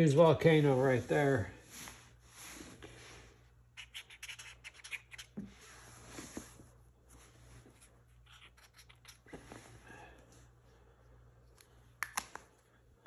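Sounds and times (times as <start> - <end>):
marker scratching on cardboard: 3.8 - 5.5.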